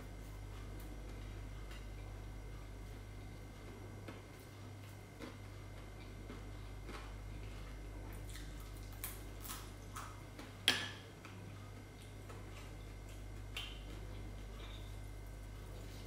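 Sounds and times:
crisp chewing crunches: 3.7s - 10.4s.

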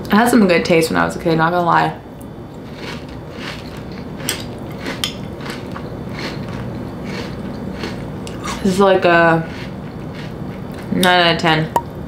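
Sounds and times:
chewing crunchy cereal: 2.6s - 11.0s.

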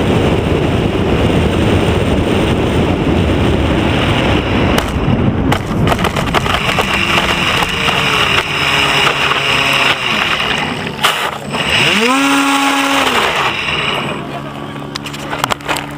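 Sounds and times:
water and wind against hull: 0.0s - 15.9s
model boat motor running: 5.6s - 15.9s.

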